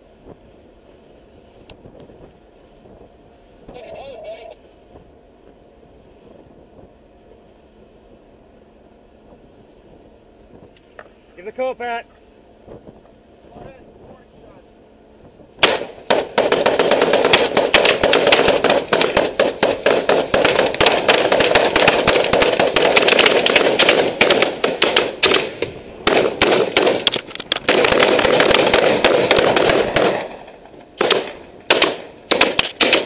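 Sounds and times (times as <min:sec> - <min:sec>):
rifle shots: 0:15.6 - 0:33.0.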